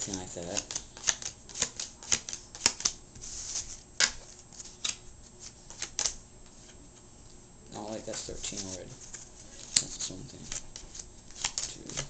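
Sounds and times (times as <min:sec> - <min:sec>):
cards slapping on wooden table: 0:00.6 - 0:03.0.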